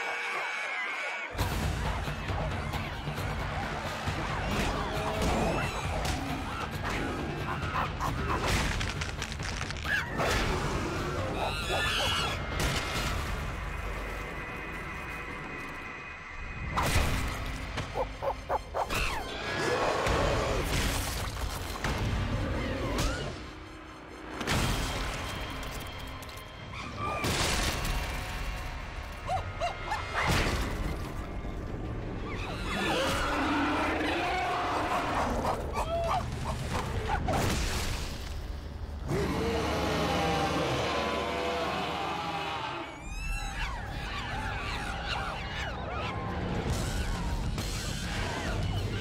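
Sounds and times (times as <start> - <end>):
apes shrieking and screaming: 0.0 - 12.6, 32.2 - 37.2, 39.1 - 49.0.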